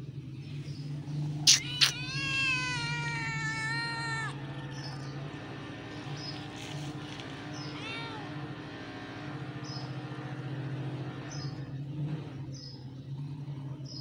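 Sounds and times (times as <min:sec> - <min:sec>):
high bird chirps: 0:00.6 - 0:02.2.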